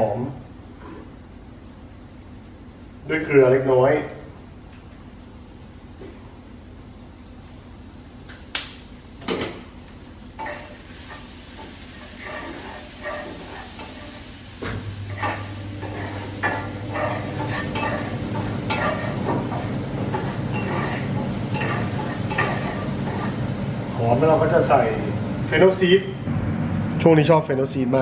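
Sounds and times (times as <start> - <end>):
onion and garlic sizzling: 8.9 - 26.3
wooden spatula scraping pan: 10.4 - 14.3, 15.1 - 23.4.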